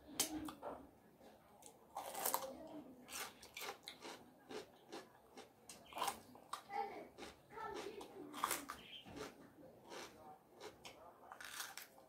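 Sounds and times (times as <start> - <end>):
lip smacks and chewing: 3.2 - 11.9.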